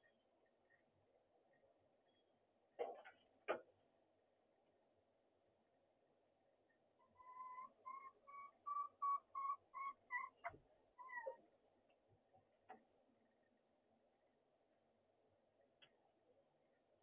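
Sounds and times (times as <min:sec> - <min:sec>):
hen clucking: 0:07.1 - 0:11.4
hen squawking: 0:07.2 - 0:11.4.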